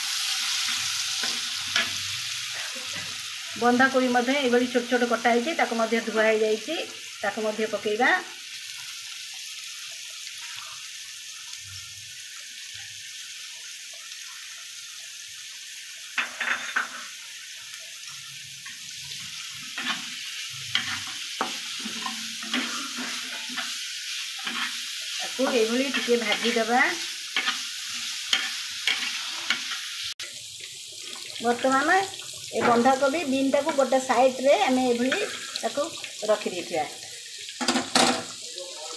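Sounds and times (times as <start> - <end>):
vegetables sizzling in hot oil: 0.0 - 38.9
metal spatula scraping pan: 19.7 - 23.8, 24.4 - 26.8, 27.4 - 29.8.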